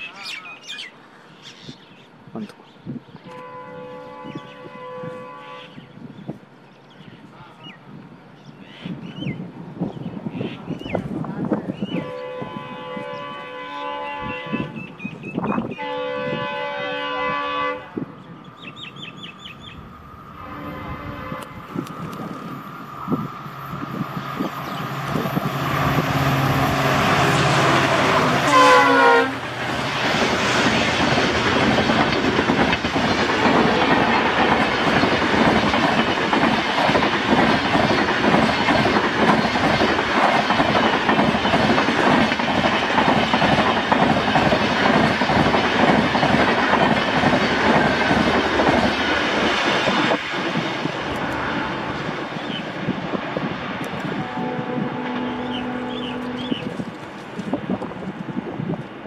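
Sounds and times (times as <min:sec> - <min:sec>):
locomotive horn: 0:03.3 - 0:05.8, 0:12.0 - 0:14.8, 0:15.8 - 0:18.1, 0:20.4 - 0:21.6, 0:25.5 - 0:29.5, 0:51.1 - 0:52.1, 0:54.1 - 0:56.9
train coaches rushing past: 0:08.8 - 0:59.0.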